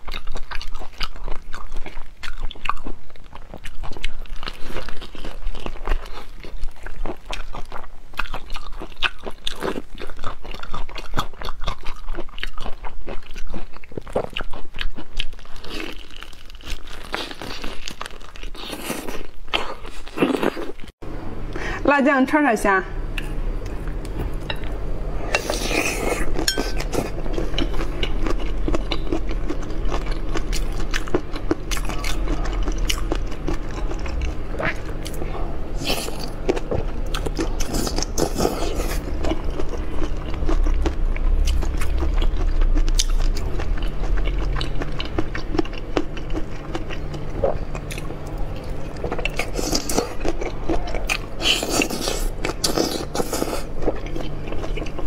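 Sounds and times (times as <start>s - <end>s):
chewing crunchy prawns: 0.0s - 20.9s, 23.2s - 55.0s
crisp crunching and wet crackling: 0.0s - 20.9s.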